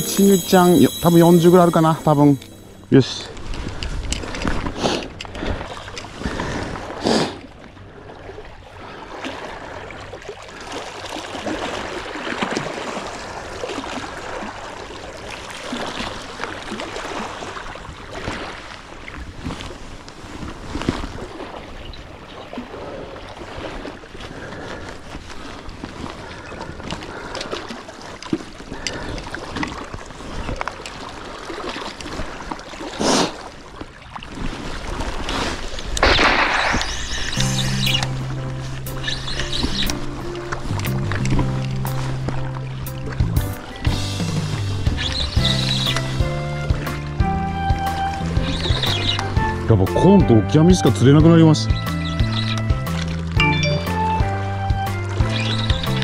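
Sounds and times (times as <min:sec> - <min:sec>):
sea water sloshing: 0:00.0 - 0:53.5.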